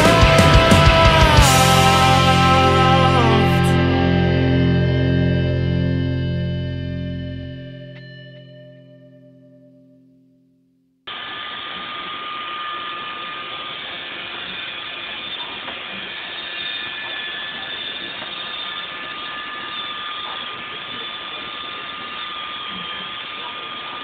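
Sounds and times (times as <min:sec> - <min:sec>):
robot vacuum running on carpet: 0:11.1 - 0:24.0.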